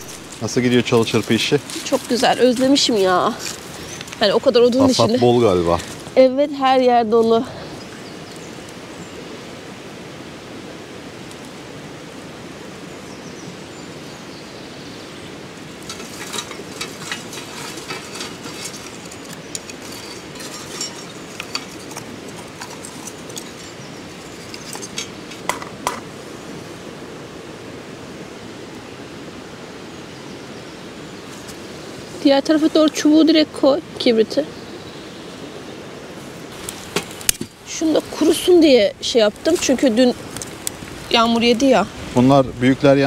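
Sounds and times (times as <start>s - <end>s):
twigs cracking and snapping: 0.0s - 4.2s, 15.8s - 26.1s, 36.5s - 38.4s, 39.3s - 41.7s
background hiss: 0.0s - 43.0s.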